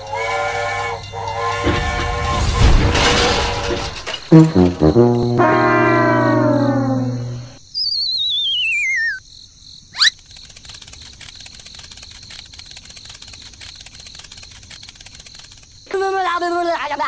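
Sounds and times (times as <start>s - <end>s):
crickets chirping: 0.0s - 17.0s
whistle sliding down: 5.4s - 9.2s.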